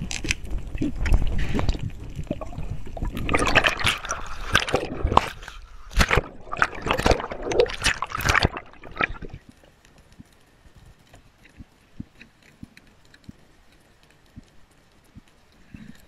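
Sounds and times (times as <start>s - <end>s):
water sloshing and splashing: 0.0s - 10.3s.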